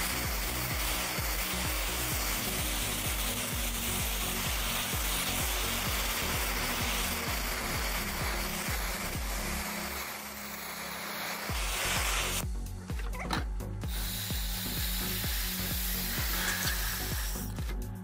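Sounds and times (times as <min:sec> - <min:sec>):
gas torch flame hissing: 0:00.0 - 0:13.0, 0:13.6 - 0:18.0
background music with steady beat: 0:00.0 - 0:18.0.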